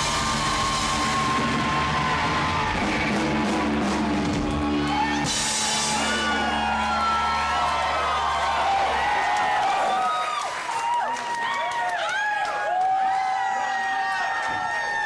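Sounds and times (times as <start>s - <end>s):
live rock band playing: 0.0s - 7.9s.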